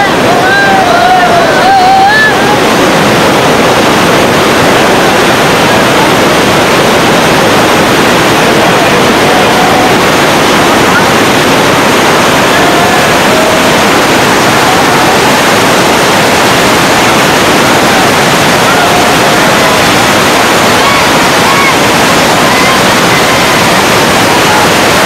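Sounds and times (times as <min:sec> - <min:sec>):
faint crowd shouts: 0:00.0 - 0:02.6, 0:17.7 - 0:25.0
floodwater rushing: 0:00.0 - 0:25.0.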